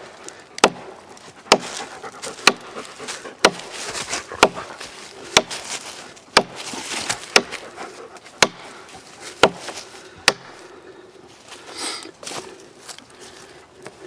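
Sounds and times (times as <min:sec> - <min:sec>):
hatchet chopping into log: 0:00.6 - 0:00.9, 0:01.5 - 0:01.8, 0:02.4 - 0:02.7, 0:03.4 - 0:03.7, 0:04.4 - 0:04.7, 0:05.3 - 0:05.7, 0:06.3 - 0:07.6, 0:08.4 - 0:08.7, 0:09.4 - 0:10.6.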